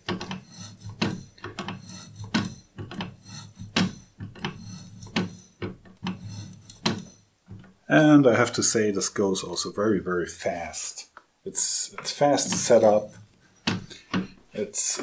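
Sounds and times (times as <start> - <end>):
tool scraping through metal: 0.0 - 7.2, 12.0 - 14.4.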